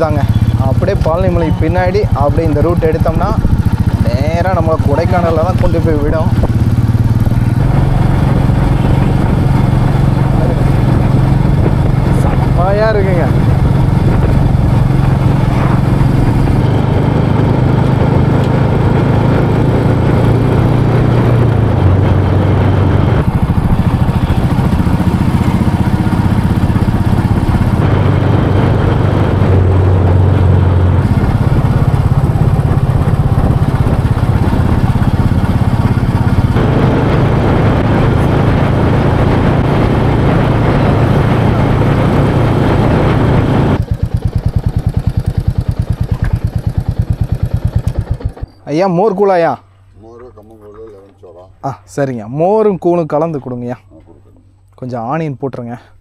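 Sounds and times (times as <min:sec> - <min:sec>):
motorcycle engine running: 0:00.0 - 0:49.1
road noise: 0:00.0 - 0:56.0.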